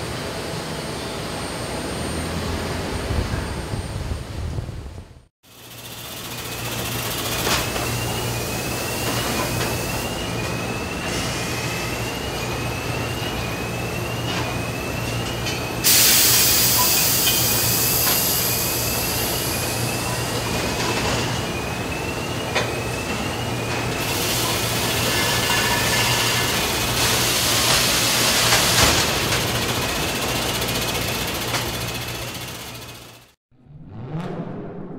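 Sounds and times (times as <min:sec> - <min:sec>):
compressed air hiss: 0:15.8 - 0:19.3.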